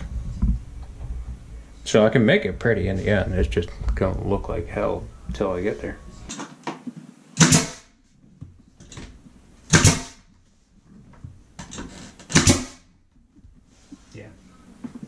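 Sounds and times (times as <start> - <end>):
nail gun shots: 7.4 - 7.9, 9.7 - 10.2, 12.3 - 12.9.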